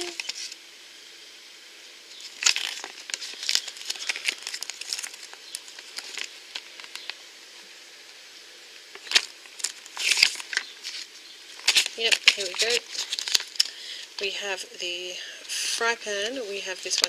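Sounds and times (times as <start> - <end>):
paper leaflet rustling and crinkling: 0.0 - 0.6, 2.2 - 7.6, 8.9 - 13.8, 16.3 - 17.0.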